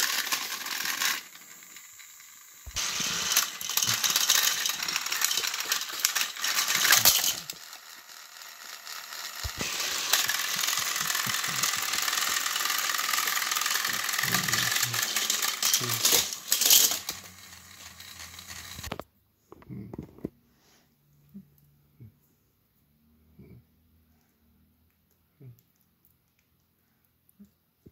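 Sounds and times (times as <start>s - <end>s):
toy train motors whirring: 0.0s - 19.0s
toy train wheels rattling: 0.0s - 19.0s.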